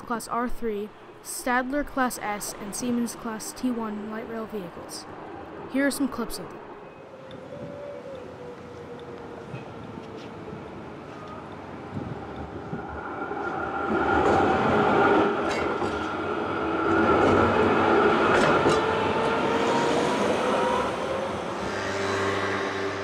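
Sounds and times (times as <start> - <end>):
tram electric drive whine: 1.8 - 23.0
car passing: 6.5 - 23.0.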